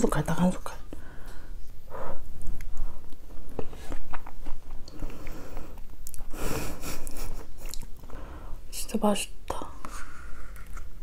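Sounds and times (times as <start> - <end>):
wet chewing mouth clicks: 7.6 - 8.0.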